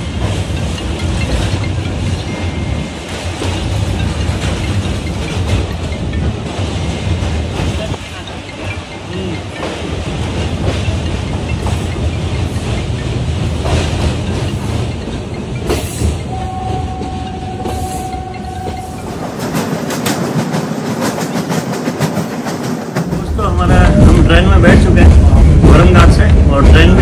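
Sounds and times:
train rumble: 0.0s - 27.0s
steady high tone: 16.2s - 20.0s.

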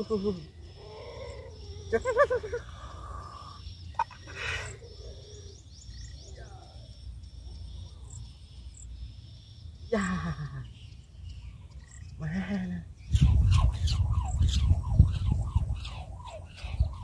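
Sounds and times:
high insect drone: 0.0s - 17.0s
low wind rumble: 10.5s - 17.0s.

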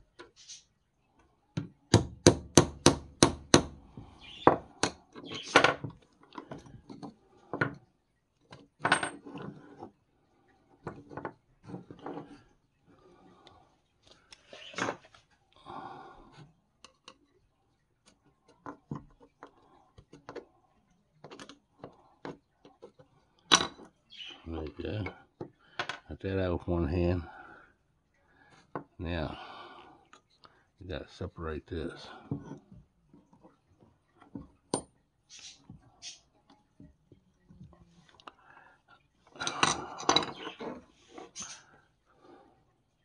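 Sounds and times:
metal tools tapping on wood: 1.6s - 7.8s, 8.5s - 9.5s, 25.0s - 26.1s, 34.2s - 35.0s, 39.4s - 40.8s.

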